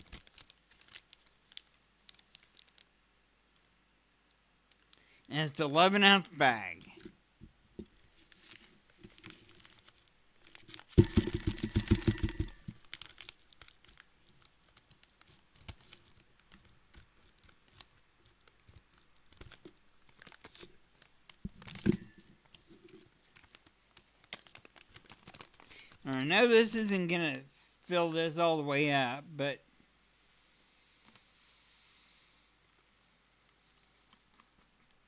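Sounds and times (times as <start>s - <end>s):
plastic bag crinkling: 0.0s - 3.0s, 8.1s - 26.1s.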